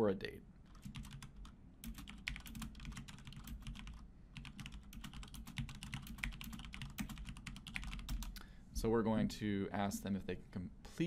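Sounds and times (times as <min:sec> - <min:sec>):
fast typing on keyboard: 0:00.7 - 0:08.4.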